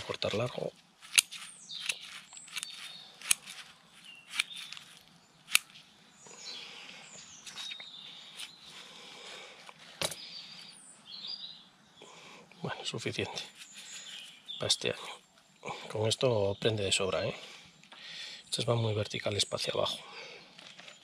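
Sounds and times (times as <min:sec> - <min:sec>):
scissors snipping roots: 0:00.0 - 0:05.8
birds chirping: 0:00.0 - 0:21.0.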